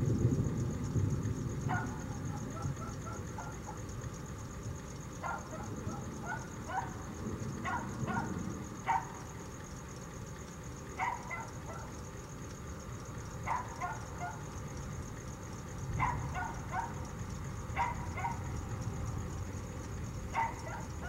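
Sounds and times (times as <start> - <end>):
low background noise: 0.0 - 21.0
dog barking: 1.7 - 3.9, 5.2 - 9.3, 11.0 - 12.0, 13.4 - 14.6, 16.0 - 17.1, 17.7 - 18.6, 20.3 - 21.0.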